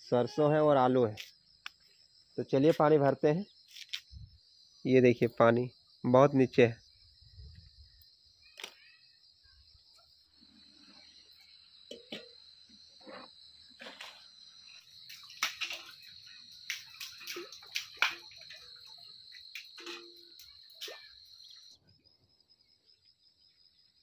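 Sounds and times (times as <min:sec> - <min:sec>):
insects chirring: 0:00.0 - 0:24.0
metal bucket clanking: 0:11.8 - 0:12.4, 0:13.0 - 0:14.3, 0:15.1 - 0:21.1.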